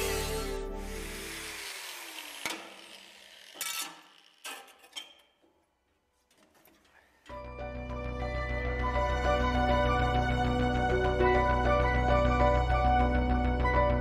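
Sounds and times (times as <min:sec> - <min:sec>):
background music: 0:00.0 - 0:02.0, 0:07.3 - 0:14.0.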